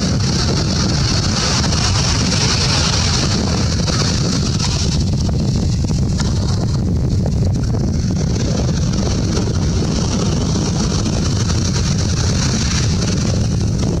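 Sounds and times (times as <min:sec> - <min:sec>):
surf washing up beach: 0:00.0 - 0:05.0
wind rumble on microphone: 0:00.0 - 0:14.0.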